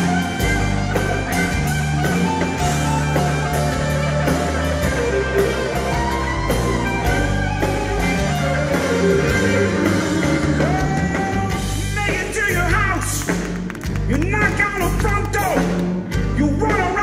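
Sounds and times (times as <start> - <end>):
electric guitar lead: 0.0 - 12.6
bass and drums: 0.0 - 17.0.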